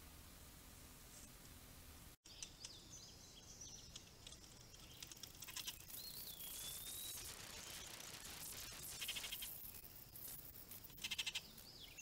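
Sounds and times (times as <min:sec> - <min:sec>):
faint hiss: 0:00.0 - 0:12.0
songbirds chirping: 0:02.2 - 0:08.2, 0:10.9 - 0:12.0.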